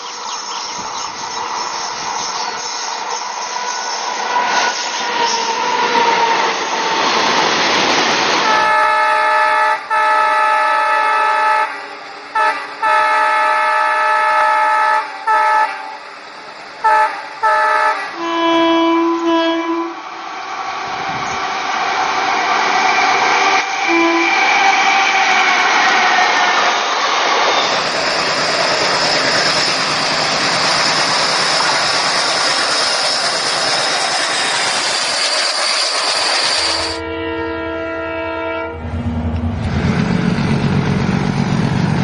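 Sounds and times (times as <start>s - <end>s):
train running noise: 0.0s - 42.0s
train horn blasts: 8.4s - 16.0s, 16.8s - 20.0s, 23.8s - 25.6s, 36.8s - 39.5s.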